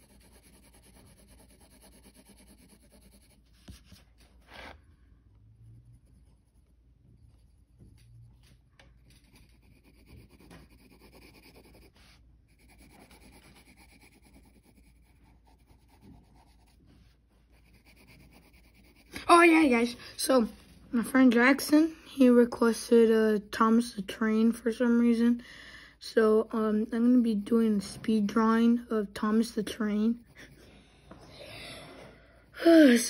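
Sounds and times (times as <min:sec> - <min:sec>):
pencil scratching on paper: 0:00.0 - 0:05.0, 0:05.6 - 0:21.6, 0:26.2 - 0:31.2.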